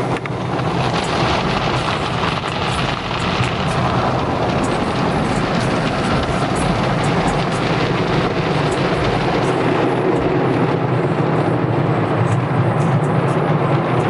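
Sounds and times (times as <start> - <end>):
water spray rushing: 0.0 - 11.2
steady low hum: 0.0 - 14.0.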